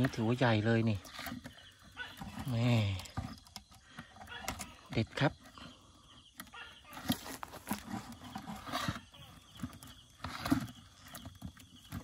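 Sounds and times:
crab trap knocking and rustling: 0:00.0 - 0:05.5.

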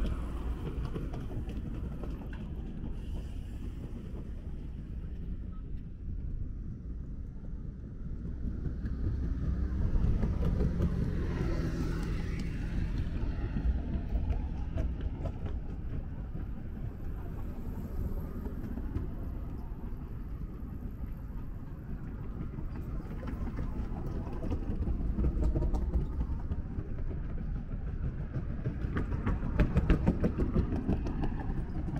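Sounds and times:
road traffic rumble: 0:08.4 - 0:27.2.

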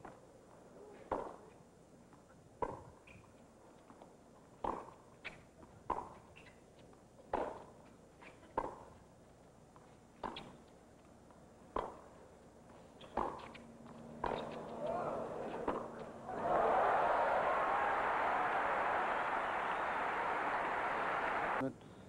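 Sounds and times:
tennis ball hitting rackets: 0:07.3 - 0:07.8, 0:10.2 - 0:10.6, 0:13.0 - 0:16.3
ball bouncing on hard court: 0:14.2 - 0:14.9
faint crowd hush: 0:14.5 - 0:21.6.

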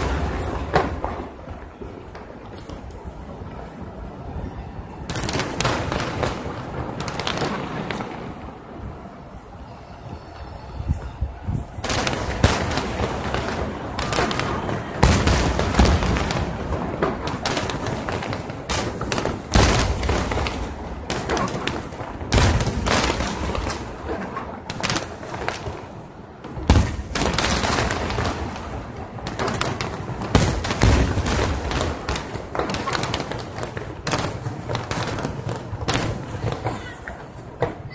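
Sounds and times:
heavy fireworks booms: 0:00.0 - 0:09.4, 0:10.8 - 0:37.9
fireworks bursting and crackling: 0:00.0 - 0:37.9.

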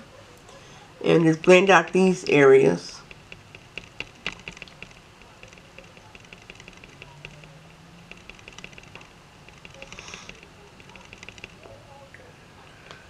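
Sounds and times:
sponge dabbing on skin: 0:01.4 - 0:11.7.

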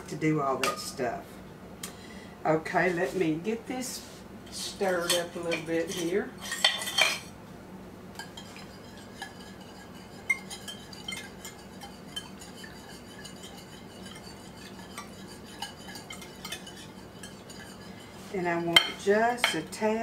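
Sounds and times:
whisk clinking against glass bowl: 0:08.2 - 0:19.8.

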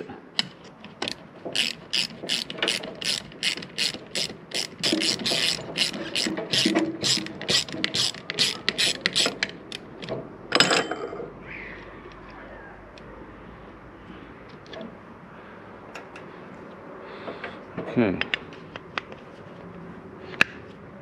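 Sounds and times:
socket ratchet clicking: 0:01.0 - 0:09.9.

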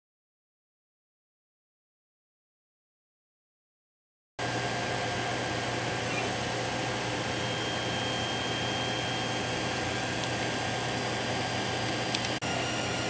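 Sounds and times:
cooling fans whirring: 0:04.4 - 0:13.0.

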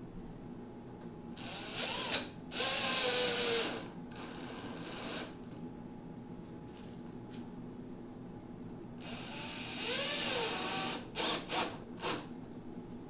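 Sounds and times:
cordless drill driving screws: 0:01.4 - 0:05.3, 0:09.0 - 0:12.3.

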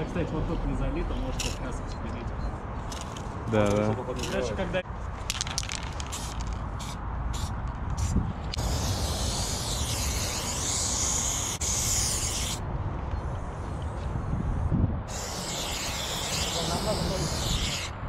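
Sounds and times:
spray paint can hissing: 0:05.3 - 0:12.6, 0:15.1 - 0:18.0.

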